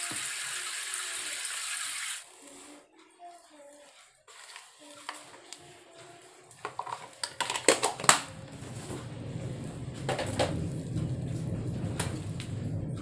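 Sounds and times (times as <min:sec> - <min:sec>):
low steady hum: 0:05.6 - 0:13.0.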